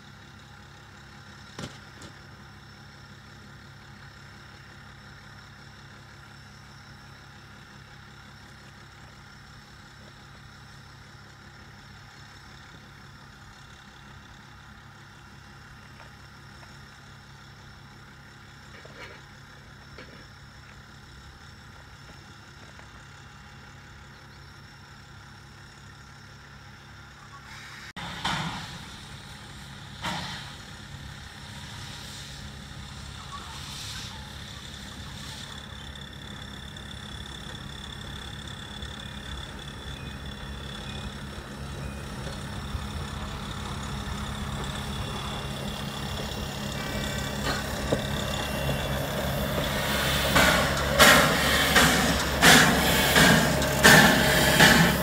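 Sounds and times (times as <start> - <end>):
locomotive exhaust beats: 0.0 - 55.0
steam locomotive running: 0.0 - 55.0
sharp steam bursts: 27.4 - 36.0, 41.5 - 55.0.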